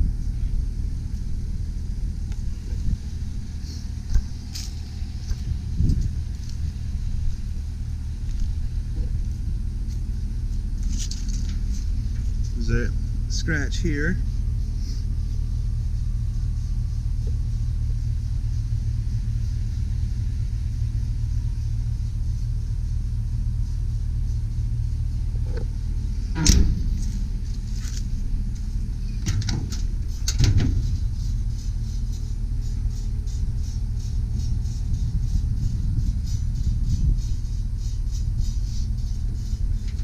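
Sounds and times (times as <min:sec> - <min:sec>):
steady low rumble: 0:00.0 - 0:40.0
metal door clanking: 0:26.3 - 0:27.2, 0:29.2 - 0:30.9
metal door rattling: 0:26.3 - 0:27.3, 0:29.2 - 0:31.0.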